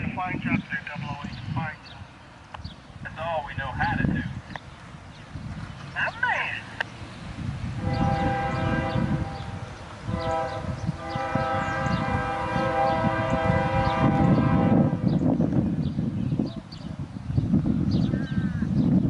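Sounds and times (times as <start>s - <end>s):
locomotive air horn blasts: 7.8s - 15.1s.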